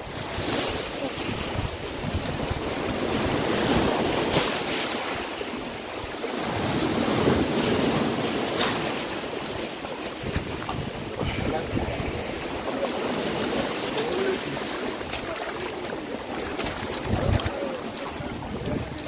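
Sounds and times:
wind on microphone: 0.0s - 4.6s, 10.1s - 13.8s, 14.4s - 19.0s
waves washing against rocks: 0.0s - 19.0s.

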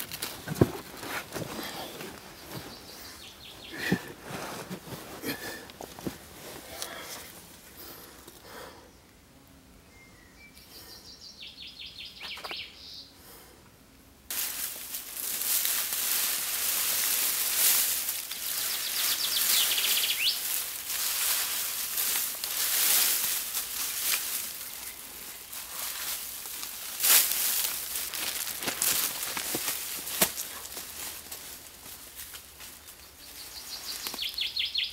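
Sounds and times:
dry leaves rustling and crackling: 0.0s - 4.0s, 14.3s - 34.9s
small birds chirping: 1.6s - 4.1s, 9.9s - 13.2s, 15.4s - 28.5s, 32.7s - 34.9s.

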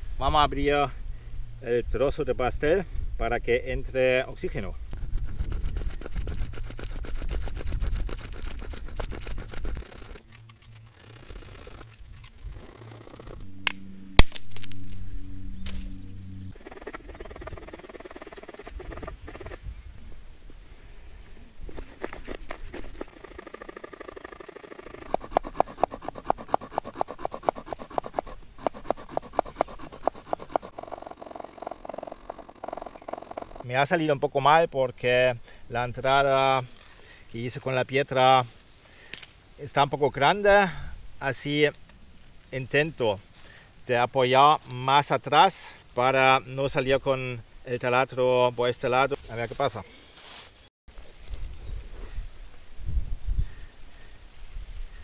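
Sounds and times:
stone scraping wood: 5.0s - 13.5s, 16.6s - 19.6s, 21.7s - 33.7s
steady low hum: 8.4s - 23.6s.

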